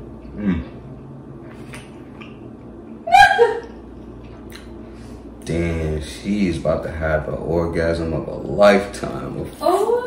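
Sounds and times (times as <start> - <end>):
man humming: 0.3 - 0.8.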